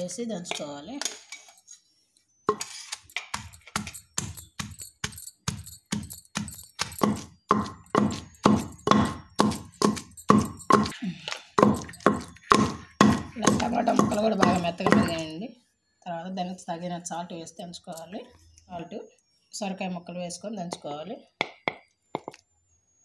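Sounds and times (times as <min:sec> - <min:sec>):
wooden pestle pounding in stone mortar: 0:03.2 - 0:11.0, 0:11.6 - 0:15.3.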